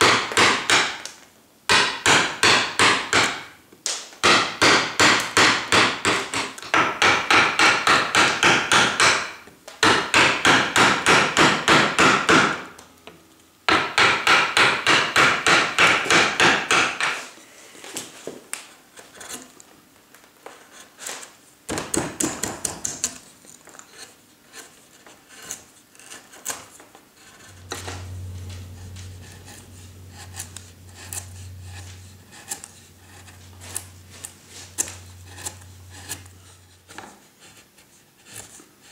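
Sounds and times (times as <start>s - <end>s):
mallet striking carving gouge: 0.0s - 1.0s, 1.7s - 3.4s, 4.2s - 12.6s, 21.7s - 23.2s
gouge scraping through wood: 18.9s - 19.6s, 20.5s - 21.3s, 22.4s - 38.9s
low steady hum: 27.2s - 37.9s.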